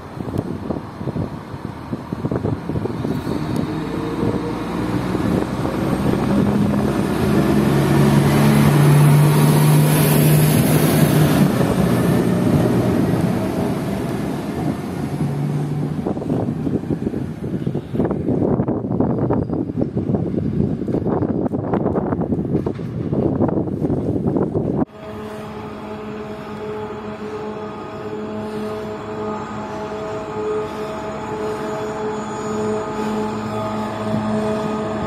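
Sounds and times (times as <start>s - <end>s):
wind on microphone: 0.0s - 24.9s
diesel railcar passing: 0.0s - 35.0s.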